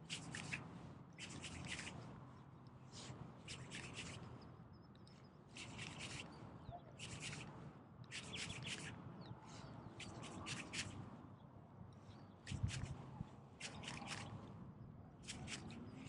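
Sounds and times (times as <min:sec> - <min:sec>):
hand and sleeve rubbing: 0:00.1 - 0:02.0, 0:03.0 - 0:04.3.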